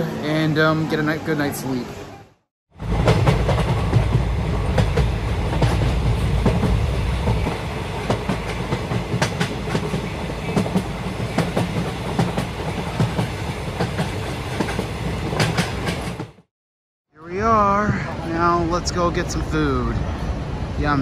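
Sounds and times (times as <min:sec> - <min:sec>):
train running rumble: 0:02.8 - 0:16.5.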